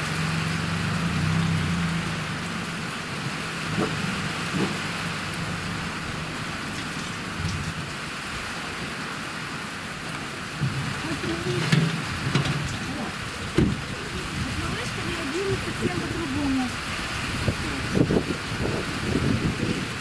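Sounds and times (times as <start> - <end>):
rain pattering on car: 0.0 - 20.0
person speaking: 10.9 - 12.1, 13.8 - 16.8.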